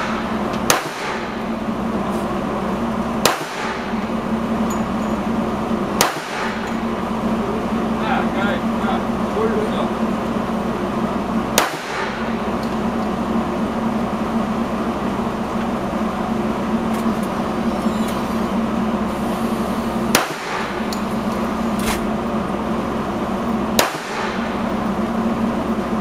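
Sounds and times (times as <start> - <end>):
pistol shots: 0.0 - 1.4, 3.2 - 4.0, 5.9 - 6.7, 11.5 - 12.4, 20.1 - 20.9, 23.7 - 24.6
steady hum: 0.0 - 26.0.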